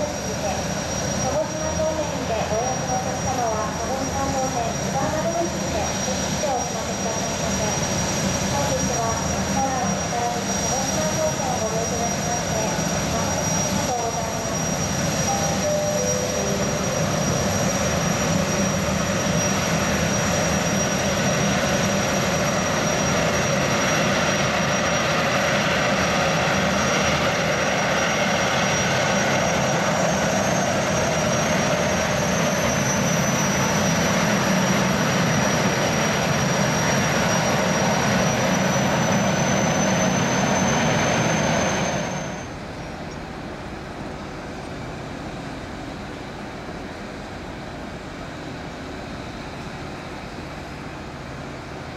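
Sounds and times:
gas turbines whining: 0:00.0 - 0:51.9
thin high tone: 0:13.5 - 0:21.0.

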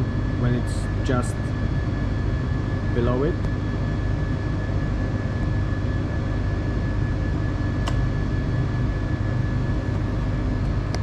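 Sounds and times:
faint high whine: 0:00.0 - 0:11.0
ventilation noise: 0:00.0 - 0:11.0
single click: 0:07.8 - 0:08.0.

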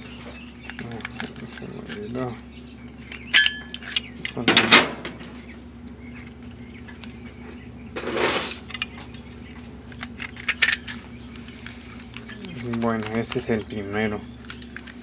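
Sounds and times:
plastic scraping rustle: 0:08.0 - 0:08.8.

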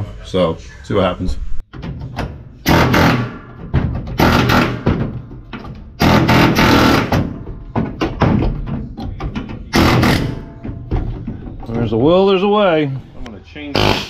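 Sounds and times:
pneumatic air chisel hammering steel: 0:02.6 - 0:03.6, 0:04.2 - 0:05.1, 0:06.0 - 0:07.4, 0:09.7 - 0:10.6, 0:13.8 - 0:14.0.

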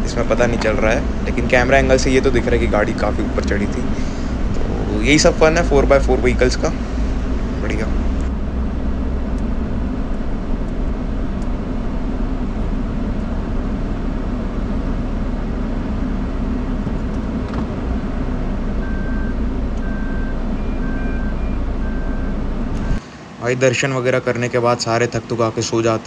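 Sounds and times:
engine and road rumble: 0:00.0 - 0:26.0
short electronic beep: 0:18.8 - 0:23.0.

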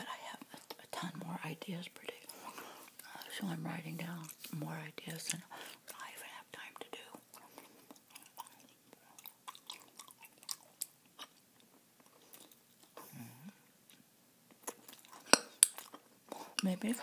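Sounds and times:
gum chewing: 0:07.1 - 0:13.2, 0:13.9 - 0:17.0.

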